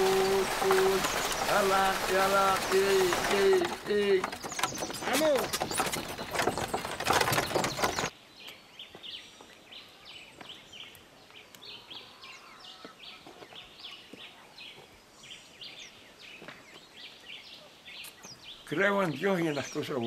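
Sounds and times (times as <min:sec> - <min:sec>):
ox cart rolling: 0:00.0 - 0:08.1
birds chirping: 0:00.0 - 0:20.0.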